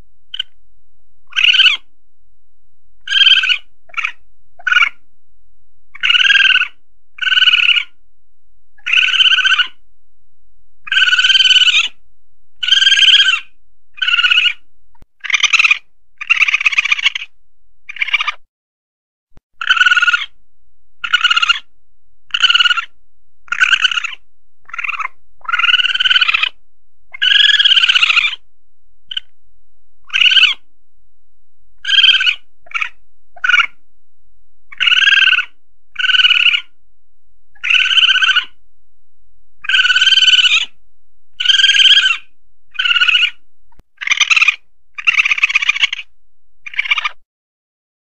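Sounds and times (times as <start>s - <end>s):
civet calls: 0.3s - 0.6s, 1.2s - 1.9s, 3.0s - 5.1s, 5.9s - 8.0s, 8.8s - 9.8s, 10.8s - 12.0s, 12.6s - 18.5s, 19.6s - 20.4s, 21.0s - 21.7s, 22.3s - 28.5s, 29.1s - 29.3s, 30.0s - 30.7s, 31.8s - 33.8s, 34.7s - 36.8s, 37.5s - 38.6s, 39.6s - 43.4s, 44.0s - 47.2s.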